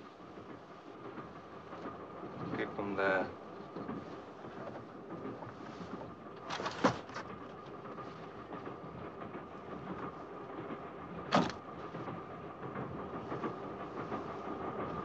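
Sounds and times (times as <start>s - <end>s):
railway carriage rumbling on rails: 0.0s - 15.0s
sharp rail clack: 11.3s - 11.7s.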